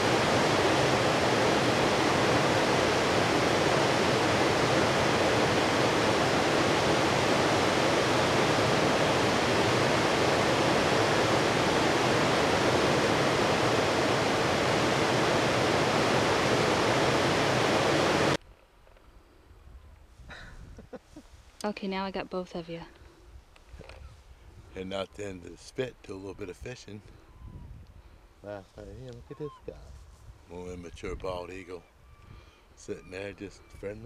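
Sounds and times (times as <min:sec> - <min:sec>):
river water rushing: 0:00.0 - 0:18.4.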